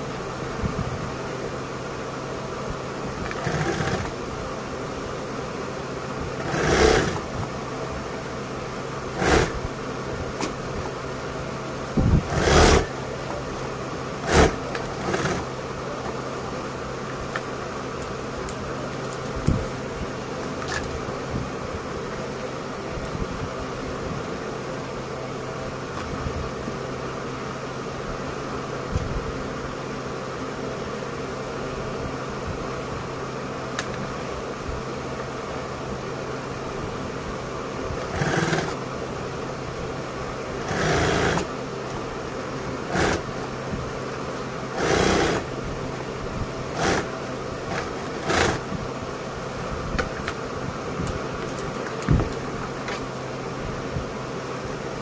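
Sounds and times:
sewing machine motor humming: 3.0s - 4.2s, 6.2s - 7.5s, 9.0s - 9.8s, 12.2s - 13.1s, 14.2s - 15.6s, 37.9s - 38.9s, 40.6s - 41.6s, 42.7s - 43.5s, 44.6s - 45.6s, 46.7s - 48.7s
handling noises: 49.5s - 53.3s.

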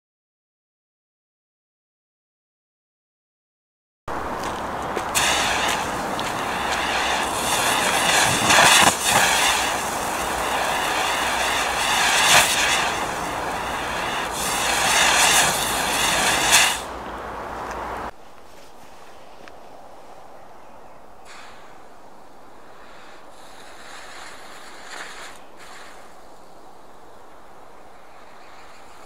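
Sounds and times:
firework wheel hissing: 4.1s - 17.0s, 21.2s - 29.0s.

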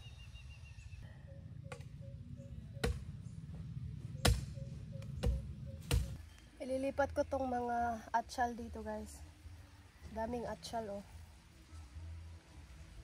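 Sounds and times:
soft repeating chirp: 0.0s - 6.6s
faint low rumble: 0.0s - 13.0s.

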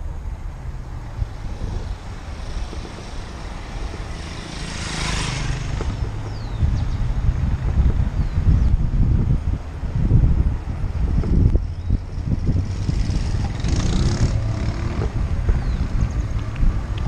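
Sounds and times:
motorcycle passing by: 0.7s - 8.2s, 11.8s - 17.0s.

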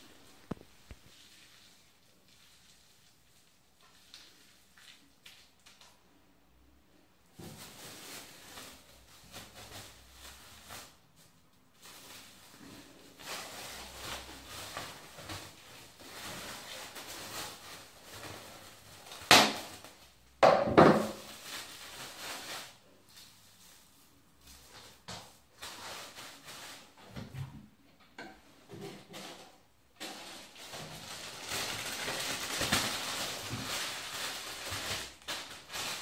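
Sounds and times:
cling film crinkling: 30.3s - 36.0s.

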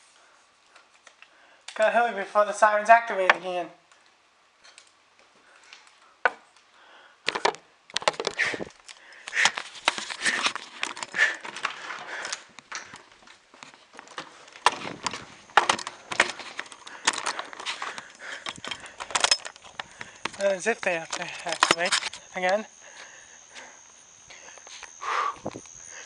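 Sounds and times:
camera handling knocks and rustling: 7.3s - 8.8s, 14.0s - 20.4s.

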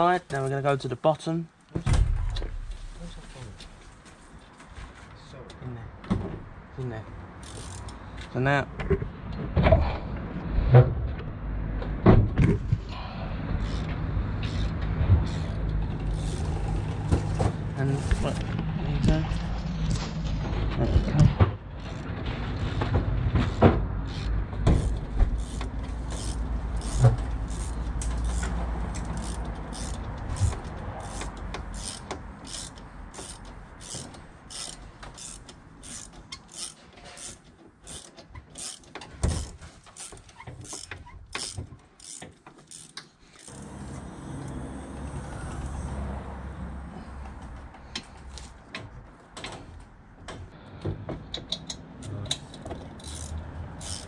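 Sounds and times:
ratchet clicking: 7.4s - 8.0s, 13.6s - 17.2s, 23.4s - 46.0s, 52.3s - 54.0s.

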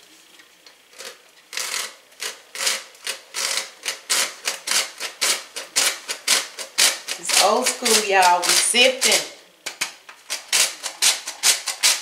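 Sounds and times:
flour sifter scratching: 1.0s - 9.4s.

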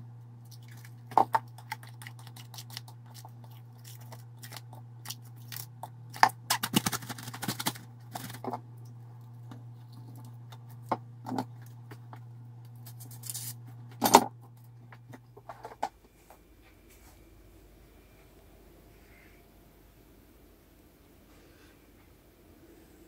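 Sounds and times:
steady low hum: 0.0s - 23.0s
cling film crinkling: 6.4s - 8.4s.

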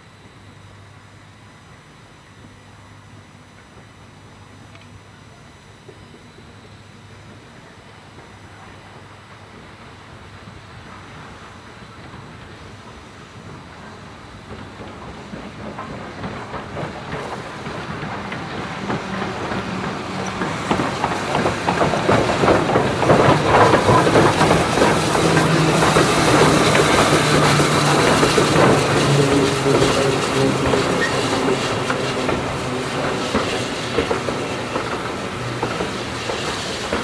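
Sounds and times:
train wheels clattering: 9.3s - 37.0s
train brakes squealing: 23.6s - 37.0s.

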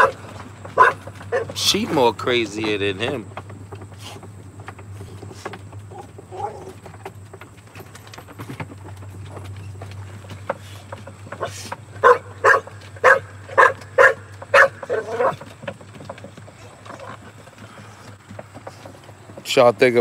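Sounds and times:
dog barking in crate: 0.0s - 1.6s, 11.4s - 15.4s.

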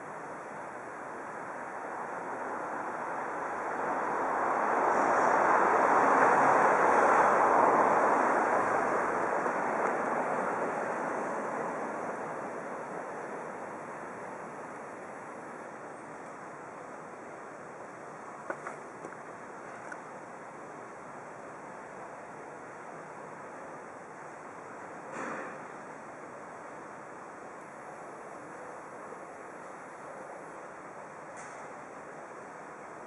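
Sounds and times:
vehicle passing by: 3.4s - 12.5s.

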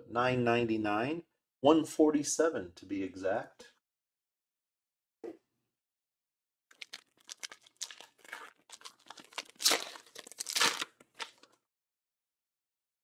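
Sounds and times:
plastic wrapper being torn open: 6.7s - 11.6s.

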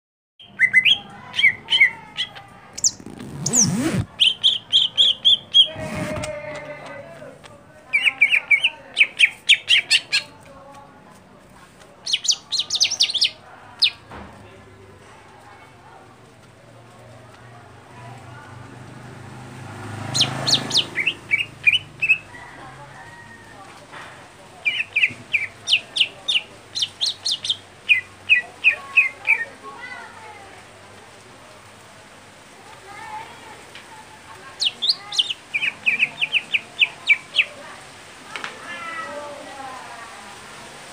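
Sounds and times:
bird chirping sharply: 0.4s - 5.8s.

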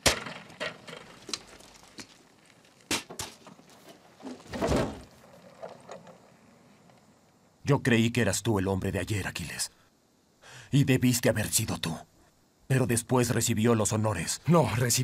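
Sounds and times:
rustling noise: 0.7s - 7.2s.

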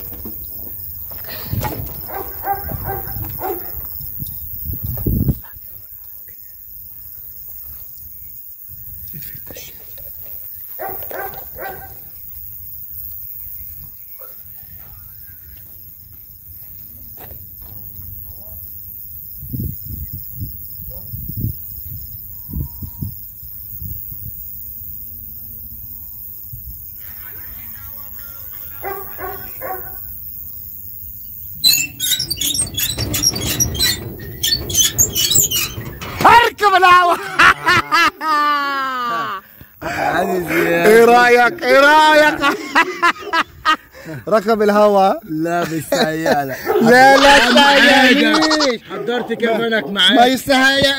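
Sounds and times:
dog barking: 2.0s - 3.8s, 10.8s - 12.1s, 14.2s - 15.0s, 28.8s - 30.1s, 46.6s - 46.9s
rustling and knocking: 31.6s - 36.7s.

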